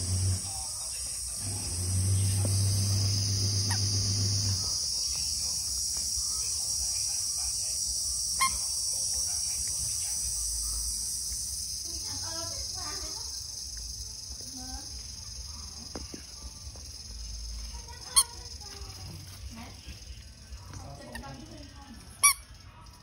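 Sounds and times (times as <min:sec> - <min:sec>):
puppy growling: 0:00.0 - 0:00.5, 0:01.4 - 0:04.6
insects droning: 0:00.0 - 0:23.0.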